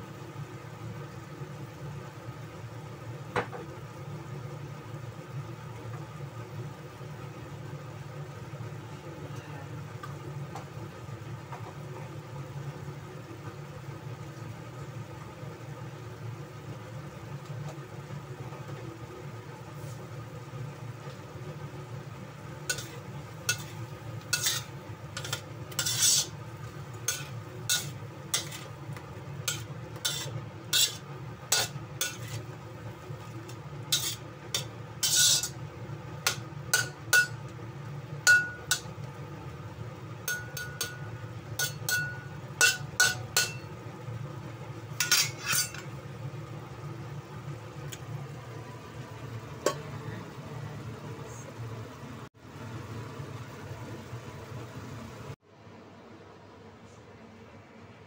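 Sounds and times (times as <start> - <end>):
steady low hum: 6.5 - 58.0
spatula scraping a wok: 22.6 - 35.6, 40.3 - 43.7, 45.0 - 45.9.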